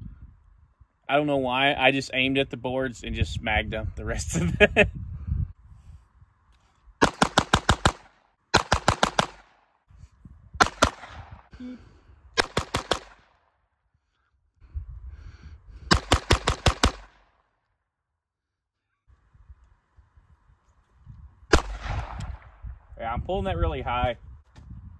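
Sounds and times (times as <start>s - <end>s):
pistol shots: 7.0s - 9.6s, 10.6s - 11.4s, 12.4s - 13.4s, 15.9s - 17.3s, 21.5s - 22.5s.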